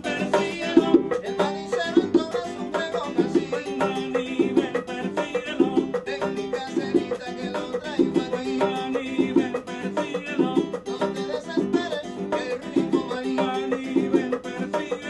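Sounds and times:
acoustic guitar strumming: 0.0s - 15.0s
bongo rhythm: 0.0s - 15.0s.

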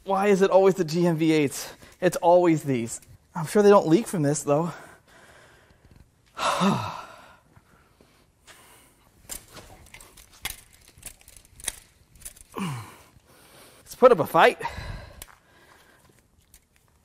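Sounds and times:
man sighing: 6.4s - 7.4s, 12.5s - 13.2s.

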